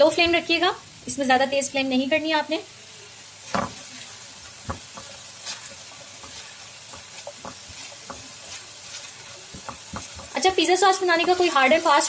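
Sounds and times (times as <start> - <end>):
onion sizzling in a frying pan: 0.0 - 12.0
spatula scraping a pan: 3.5 - 12.0.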